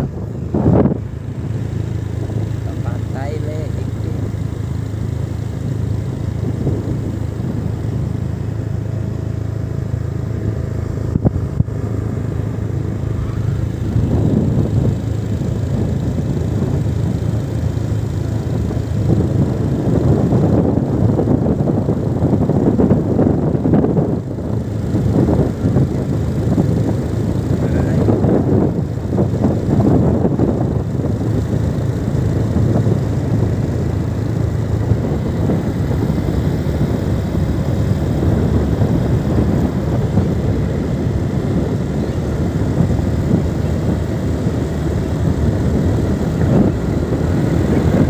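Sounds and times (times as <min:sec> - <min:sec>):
vehicle engine hum: 0:00.0 - 0:48.0
wind rumble on microphone: 0:00.0 - 0:48.0.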